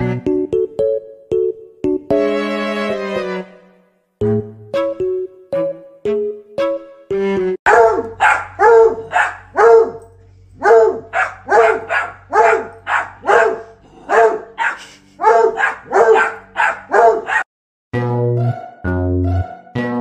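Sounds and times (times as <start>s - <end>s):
dog barking: 7.7s - 17.5s.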